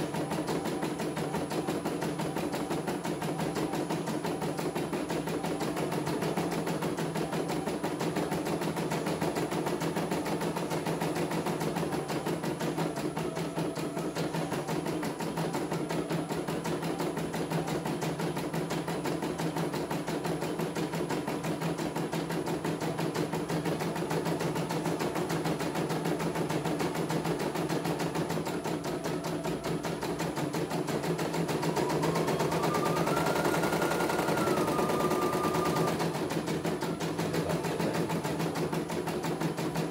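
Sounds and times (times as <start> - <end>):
embroidery machine stitching: 0.0 - 39.9
machine whine: 27.0 - 39.9.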